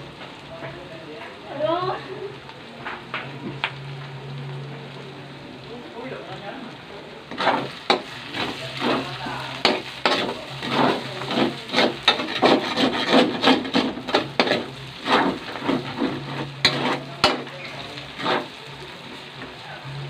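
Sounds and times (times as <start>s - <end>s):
oil sizzling: 0.0s - 20.0s
spatula scraping a metal wok: 7.3s - 20.0s.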